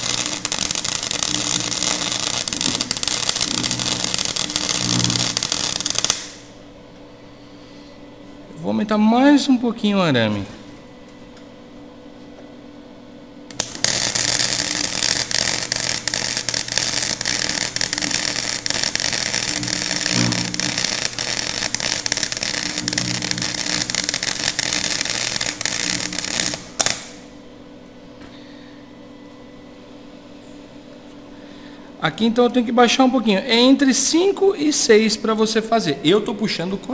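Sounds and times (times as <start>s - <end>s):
welding arc crackling: 0.0s - 6.6s, 13.5s - 27.3s.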